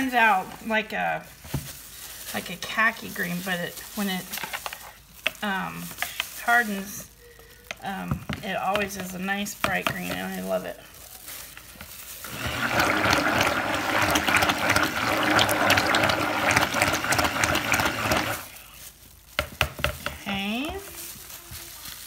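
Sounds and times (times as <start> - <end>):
batter churning: 0.0 - 22.0
stick blender motor hum: 12.2 - 18.5.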